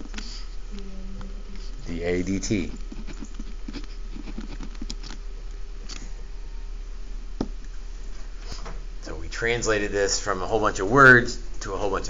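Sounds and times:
low electrical hum: 0.0s - 12.0s
marker writing on paper: 2.2s - 5.2s.

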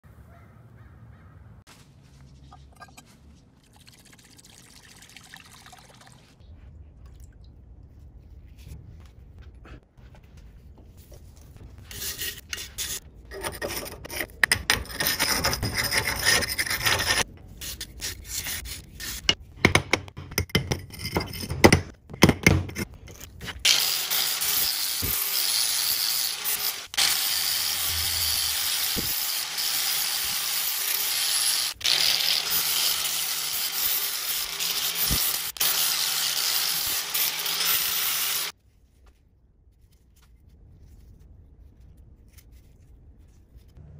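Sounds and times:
scraping on metal hatchet head: 11.9s - 19.4s
angle grinder grinding steel: 23.6s - 38.5s.

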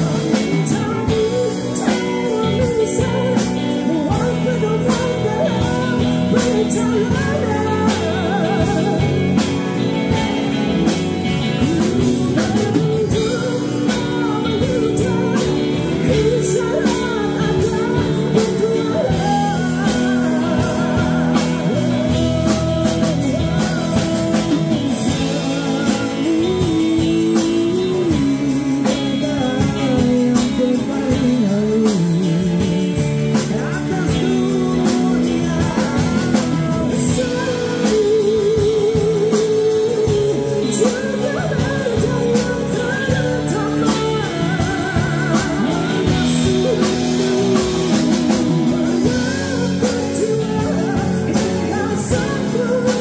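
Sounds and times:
band playing with singer: 0.0s - 53.0s.

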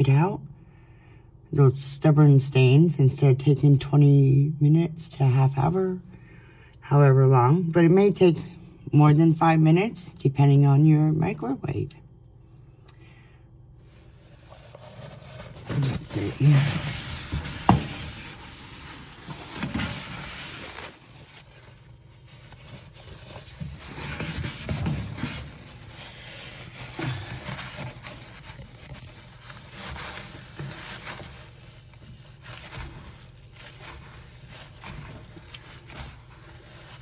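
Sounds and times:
cloth wiping microwave walls: 13.8s - 37.0s.

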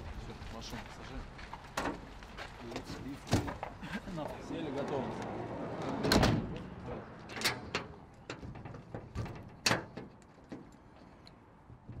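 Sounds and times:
sliding van door slamming: 6.0s - 6.6s.

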